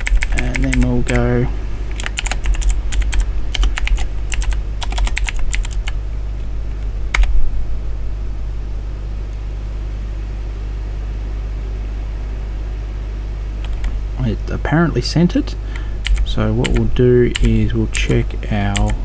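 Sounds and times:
computer keyboard typing: 0:00.0 - 0:01.3, 0:01.9 - 0:06.0, 0:07.1 - 0:07.3, 0:13.6 - 0:13.9, 0:16.0 - 0:19.0
steady low hum: 0:00.0 - 0:19.0.

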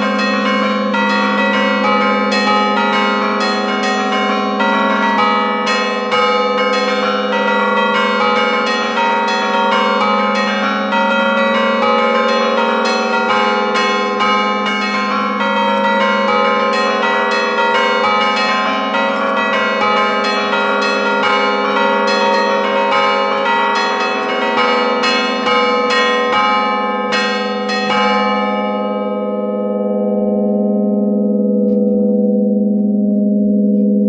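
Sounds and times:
church bells pealing: 0:00.0 - 0:34.0.

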